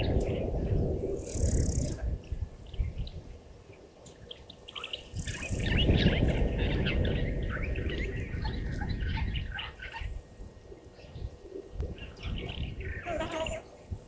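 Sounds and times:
low rumbling noise: 0.0 - 3.7
high chirping calls: 4.3 - 10.2.

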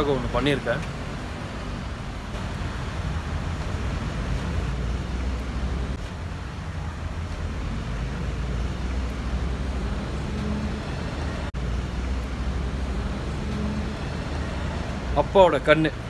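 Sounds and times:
low rumble of distant traffic: 0.0 - 16.0.

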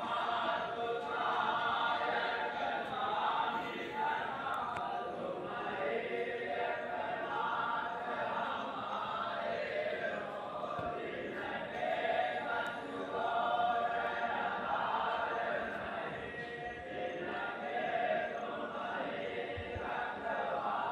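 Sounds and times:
choir chanting: 0.0 - 20.9.

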